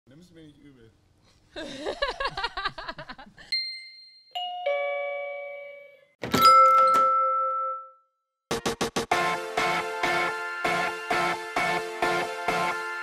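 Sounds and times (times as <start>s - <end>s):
group laughter: 1.6s - 3.4s.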